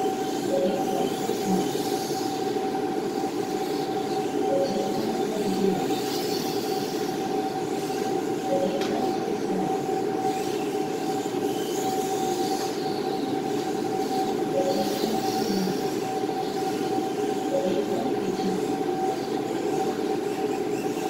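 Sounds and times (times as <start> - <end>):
steady mechanical hum: 0.0 - 21.0
electric toy car motors whining: 5.8 - 8.5, 9.5 - 17.5, 18.4 - 21.0.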